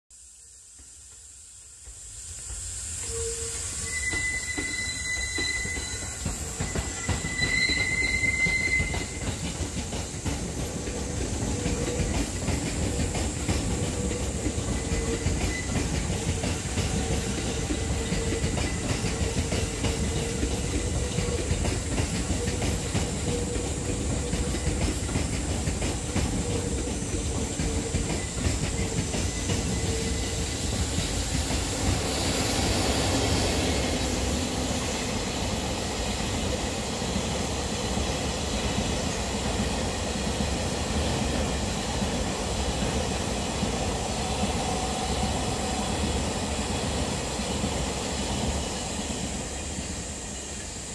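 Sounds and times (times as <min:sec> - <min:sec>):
steady train hum: 0:00.1 - 0:50.9
train wheels clicking on rails: 0:00.2 - 0:50.9
freight train rumbling: 0:00.6 - 0:50.9
high wheel squeal: 0:03.0 - 0:35.2.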